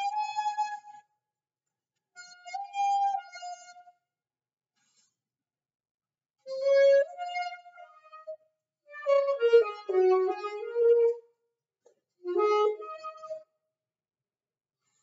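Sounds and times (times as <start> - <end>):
alto saxophone solo: 9.0 - 11.2, 12.3 - 13.4.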